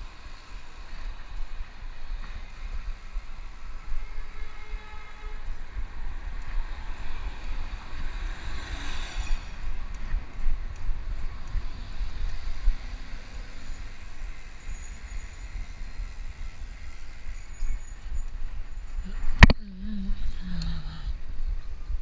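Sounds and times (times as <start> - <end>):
road hiss: 0.0 - 9.8.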